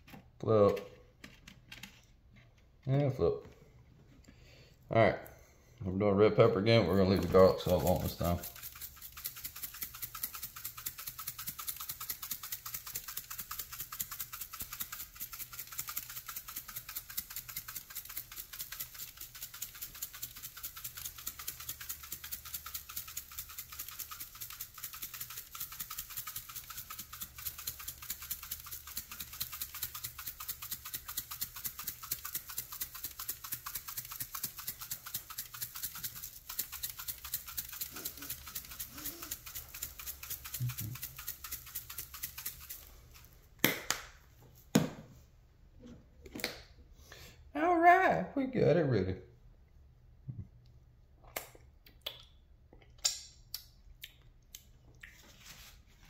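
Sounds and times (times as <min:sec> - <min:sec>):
pepper shaker rattling: 0:06.8 - 0:43.5.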